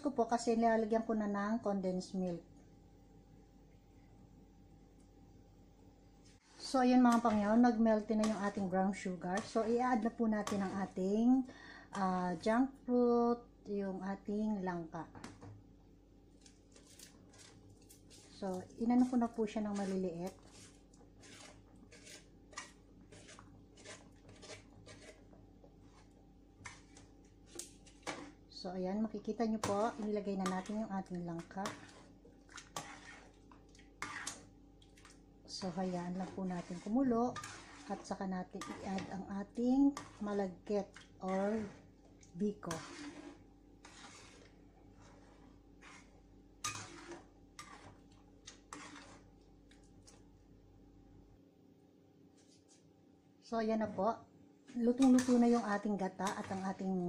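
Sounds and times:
soft scraping and rustling: 0:06.2 - 0:11.2, 0:16.3 - 0:28.5, 0:29.1 - 0:50.3, 0:52.3 - 0:52.9, 0:53.8 - 0:57.0.

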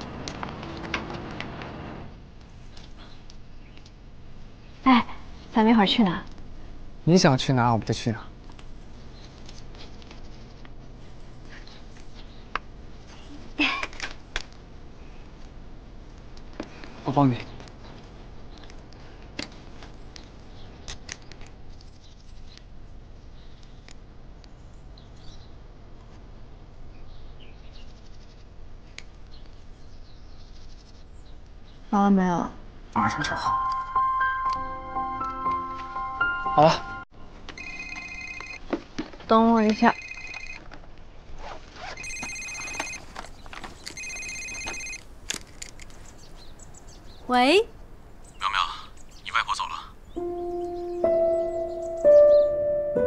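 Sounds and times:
mobile phone ringing: 0:33.0 - 0:38.6, 0:39.8 - 0:40.7, 0:42.0 - 0:43.3, 0:43.9 - 0:45.0.

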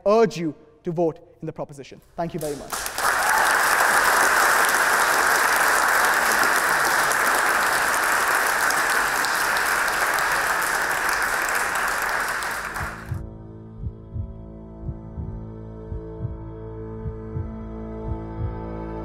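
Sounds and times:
audience applauding: 0:02.4 - 0:13.2
soft ambient music: 0:11.4 - 0:19.0.

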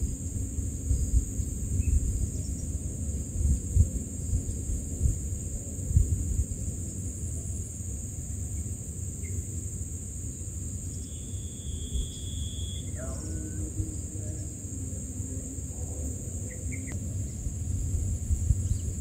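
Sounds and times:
low outdoor rumble: 0:00.0 - 0:19.0
insect buzzing: 0:07.8 - 0:19.0.

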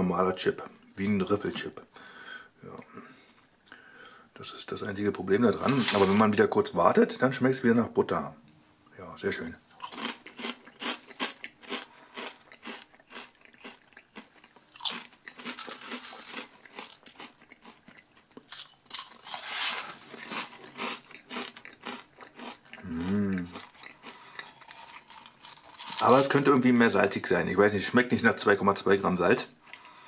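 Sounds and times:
crisps rustling: 0:05.5 - 0:06.4, 0:09.8 - 0:22.6, 0:23.4 - 0:27.2
crisps being chewed: 0:09.7 - 0:27.2
person humming: 0:22.8 - 0:23.6.

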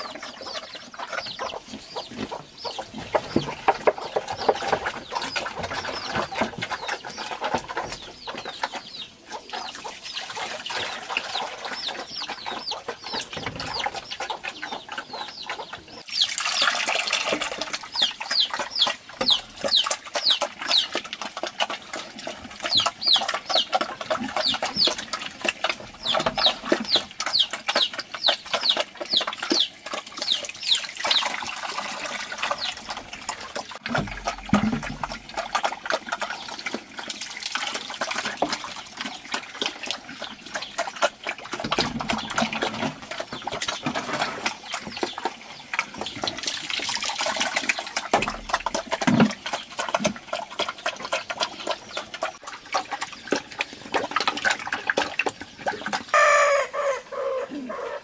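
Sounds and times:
chicks peeping: 0:00.0 - 0:21.8, 0:22.4 - 0:36.8, 0:50.7 - 0:52.4
chickens clucking: 0:00.0 - 0:58.0.

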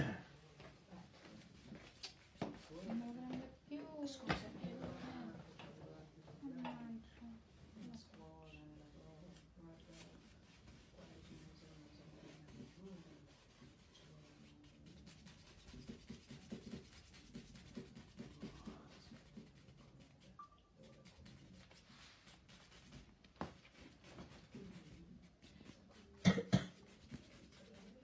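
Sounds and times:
paintbrush scratching on canvas: 0:08.6 - 0:28.0.

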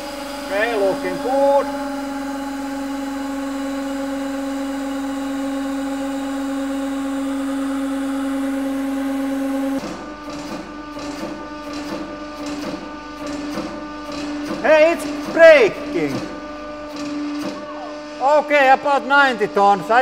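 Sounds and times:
hydraulic pump humming: 0:00.0 - 0:20.0.

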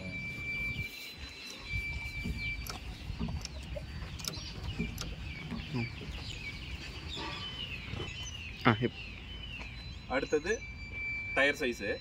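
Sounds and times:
small birds chirping: 0:00.0 - 0:12.0
chickens clucking: 0:02.2 - 0:08.1.

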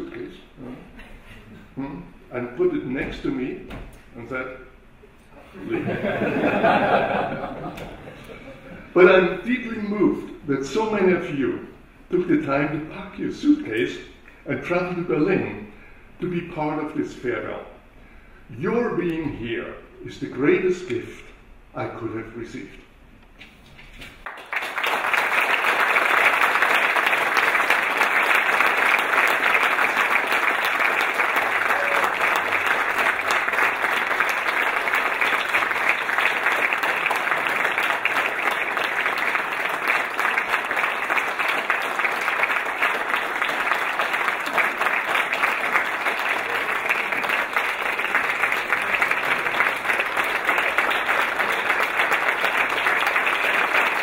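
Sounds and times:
audience applause: 0:24.2 - 0:54.0.

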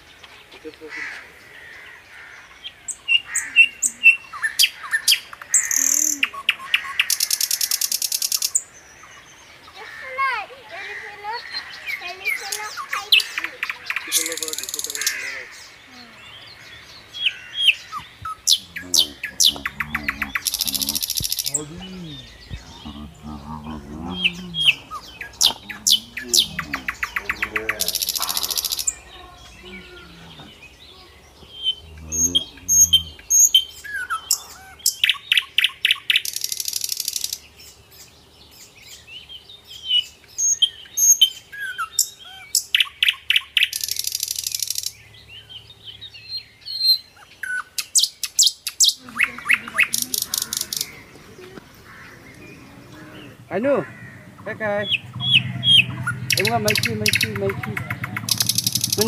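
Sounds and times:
birds chirping and singing: 0:00.0 - 0:59.0
bird chirps ending in rattle: 0:55.2 - 0:59.0.

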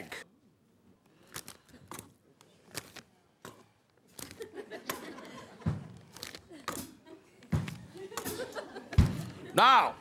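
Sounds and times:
plastic bag rustling: 0:06.1 - 0:06.4.

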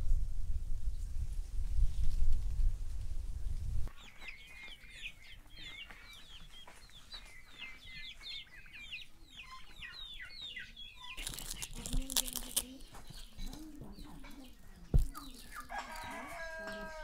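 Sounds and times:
chickens chirping and clucking: 0:03.9 - 0:17.0.

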